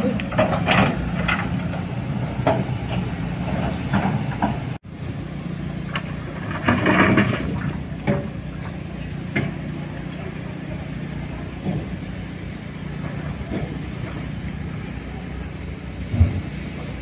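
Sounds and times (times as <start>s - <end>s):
heavy diesel machinery running: 0.0s - 17.0s
knocks and clatter: 0.2s - 4.8s, 5.9s - 8.4s.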